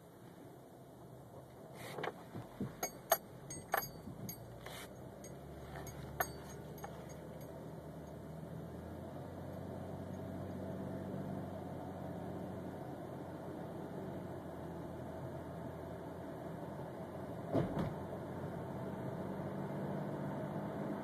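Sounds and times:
car engine running: 2.2s - 14.4s
keys jingling: 2.8s - 7.5s.

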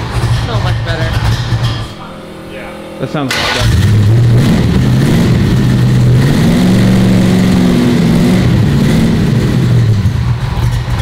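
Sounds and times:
car engine revving: 0.0s - 11.0s.

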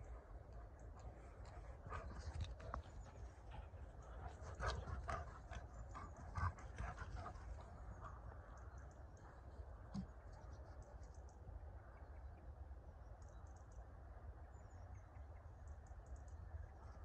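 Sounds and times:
faint low outdoor rumble: 0.0s - 17.0s.

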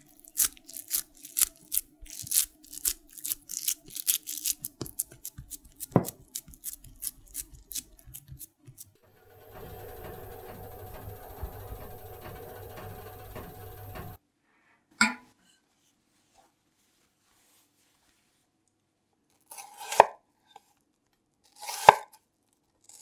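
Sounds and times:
fingers patting meat mixture: 0.0s - 9.0s
oven humming: 6.8s - 14.2s.

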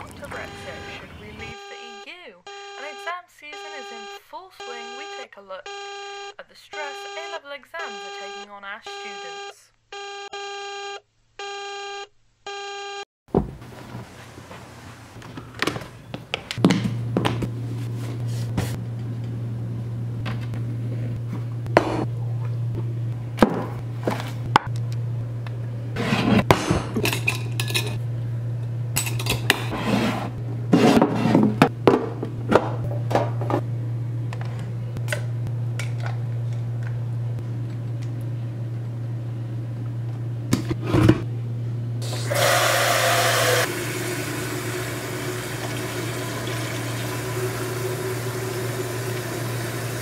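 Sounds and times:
steady low hum: 14.9s - 42.3s.

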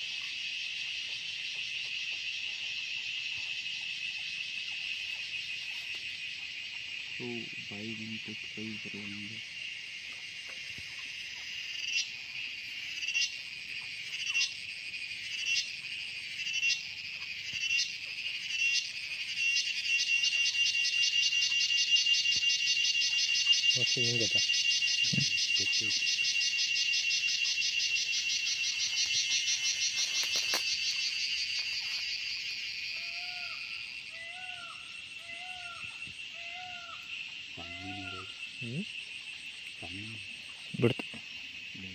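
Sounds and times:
animal high-pitched pulsing call: 32.9s - 37.0s, 37.6s - 38.8s.

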